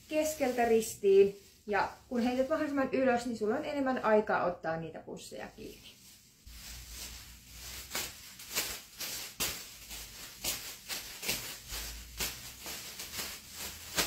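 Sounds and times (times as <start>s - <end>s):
plastic bags rustling: 0.0s - 4.1s, 5.5s - 14.0s.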